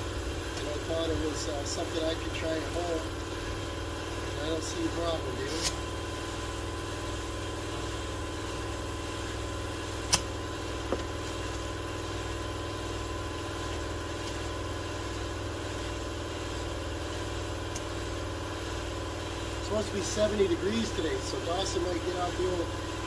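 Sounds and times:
motor humming: 0.0 - 23.0
sharp click: 10.1 - 10.3.

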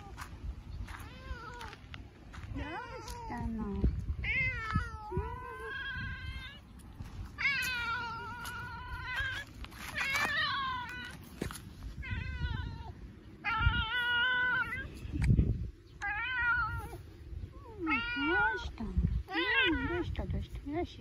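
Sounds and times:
cat meowing: 17.6 - 18.7.

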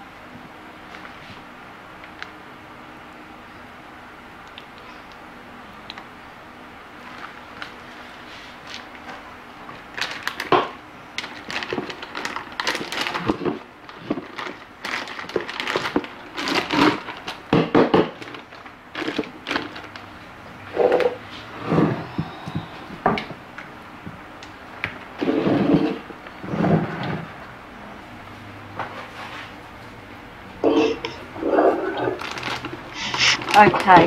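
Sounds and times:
plastic rustling and crinkling: 7.0 - 20.2, 30.7 - 34.0.

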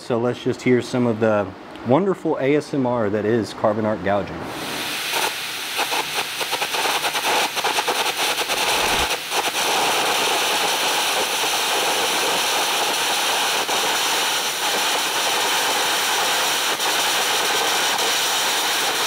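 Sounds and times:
rush of arc and compressed air: 4.5 - 19.0
arc gouging crackling and popping: 7.6 - 9.6.

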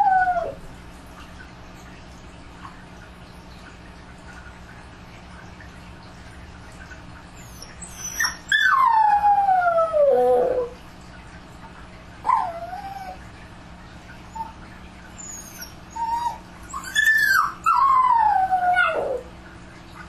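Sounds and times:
dog howling: 0.0 - 0.6, 7.9 - 10.8, 12.3 - 13.2, 15.2 - 19.3
dog whimpering: 0.0 - 0.6, 7.4 - 10.8, 12.3 - 13.2, 15.2 - 19.3
faint steady hum: 0.0 - 20.0.

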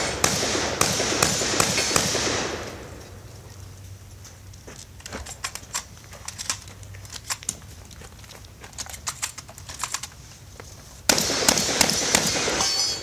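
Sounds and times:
loud shotgun fire: 0.0 - 2.9, 11.1 - 13.0
shotgun shells loading clicks: 5.0 - 10.2.

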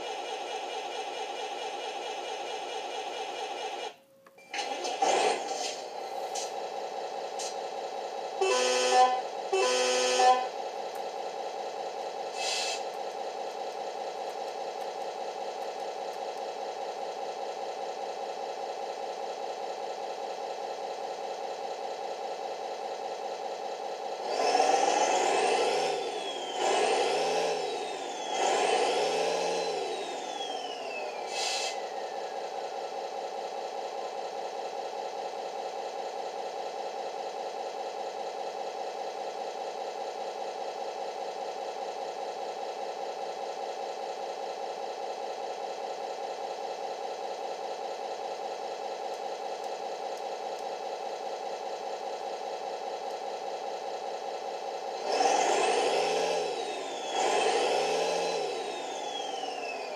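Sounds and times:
diesel engine idling and revving: 4.6 - 59.9
air horn blasts: 8.4 - 10.5
short air hiss: 12.4 - 12.9.

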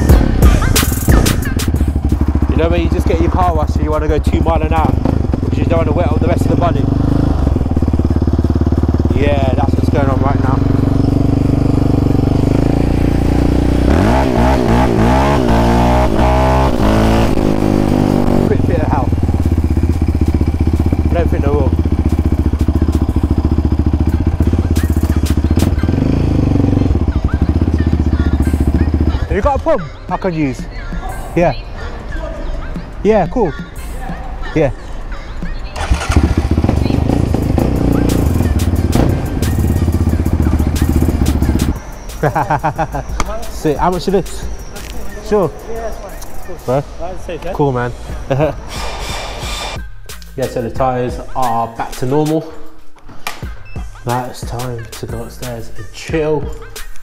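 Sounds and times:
quad bike engine revving: 0.0 - 30.0, 35.7 - 44.9.

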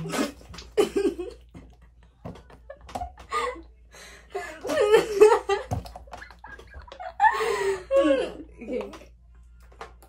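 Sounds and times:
girls laughing and giggling: 0.7 - 8.7.

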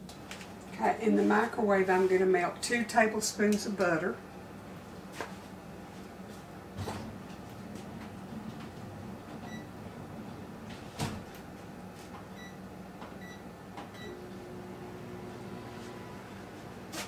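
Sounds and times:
microwave oven humming: 2.5 - 17.0
keypad beeps: 9.5 - 9.7.

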